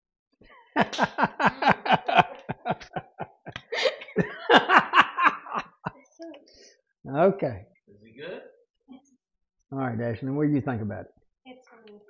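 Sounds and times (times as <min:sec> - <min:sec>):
people laughing: 0:00.5 - 0:06.1.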